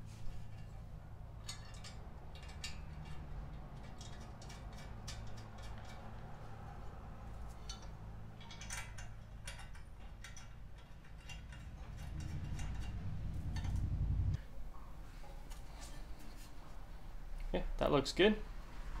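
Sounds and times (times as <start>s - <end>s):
steady low hum: 0.0s - 19.0s
clicks of metal parts being fitted: 1.4s - 6.3s, 7.5s - 13.9s
low rumble: 11.6s - 14.8s.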